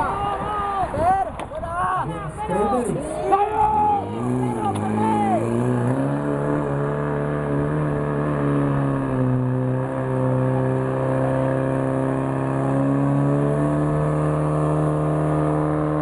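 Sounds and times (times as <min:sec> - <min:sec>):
pump engine running at high revs: 0:03.5 - 0:16.0.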